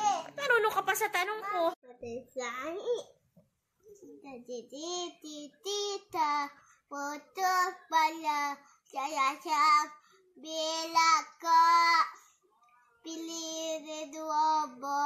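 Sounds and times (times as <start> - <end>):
young child singing: 4.0 - 12.3, 13.0 - 15.0.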